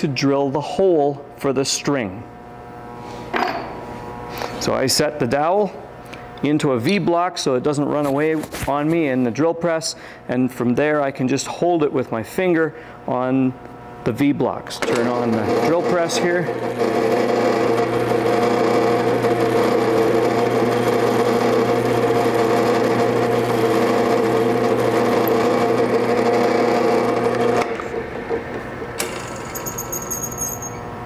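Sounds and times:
drill press motor hum: 0:14.8 - 0:31.0.

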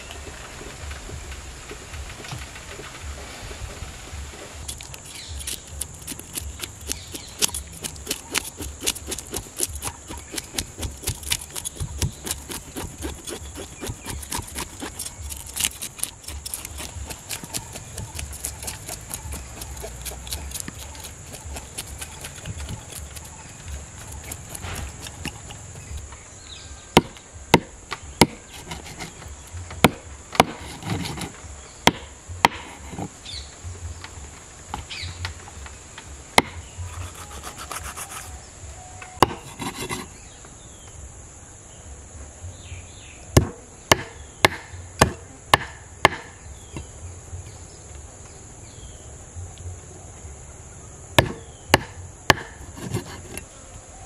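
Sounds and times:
high insect buzz: 0:00.0 - 0:54.0
knife scraping fish scales: 0:04.6 - 0:26.0, 0:28.4 - 0:29.5, 0:30.6 - 0:31.4, 0:36.8 - 0:38.4, 0:39.3 - 0:40.2, 0:52.6 - 0:53.5
blade knocking on wood: 0:04.7 - 0:26.0.

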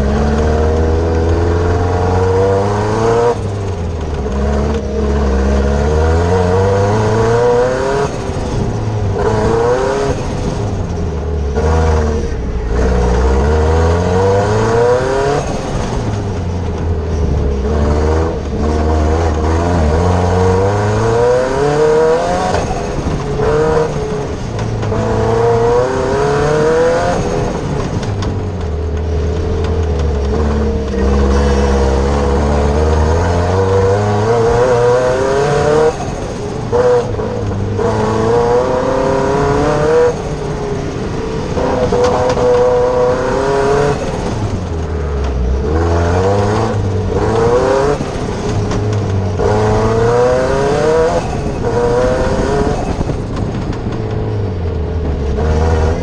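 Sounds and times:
racing car engine revving: 0:00.0 - 0:56.0.

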